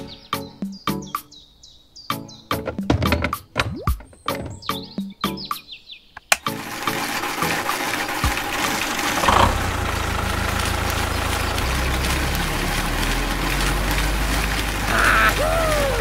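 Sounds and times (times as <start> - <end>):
toy motor whirring: 6.4 - 9.5
deeper hum: 9.2 - 16.0.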